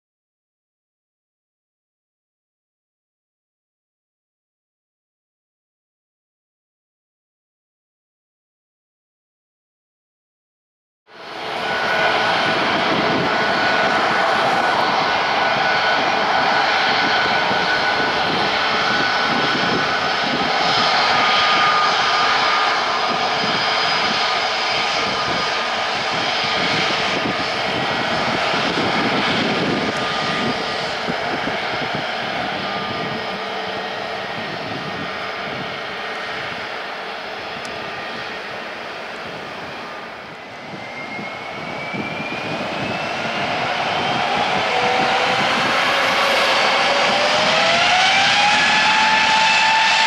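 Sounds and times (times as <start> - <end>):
jet engines whining: 11.1 - 50.0.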